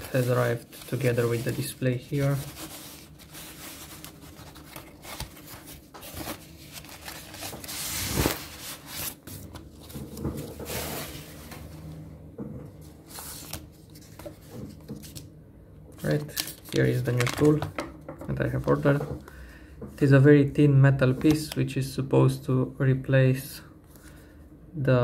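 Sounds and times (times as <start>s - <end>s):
foam and cardboard rustling: 0.0s - 11.6s.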